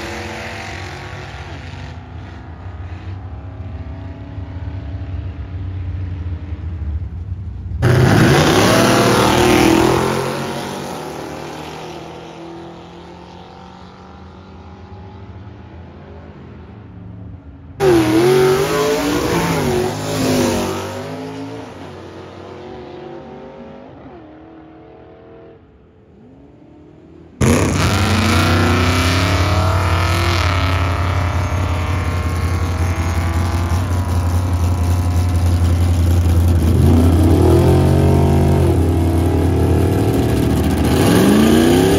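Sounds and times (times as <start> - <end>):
drag car engine at hard throttle: 7.8 - 12.8, 17.8 - 22.3, 27.4 - 41.9.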